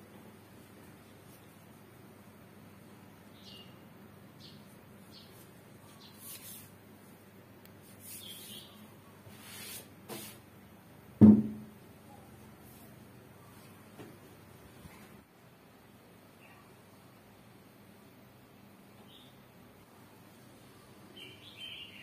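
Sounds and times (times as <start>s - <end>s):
rustling and scraping: 5.2s - 6.8s
drum knocking on wooden workbench: 11.2s - 11.6s.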